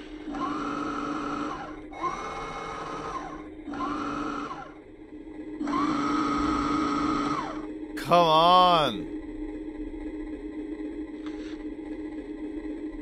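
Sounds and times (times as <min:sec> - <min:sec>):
toy truck electric motor whining: 0:00.3 - 0:04.8.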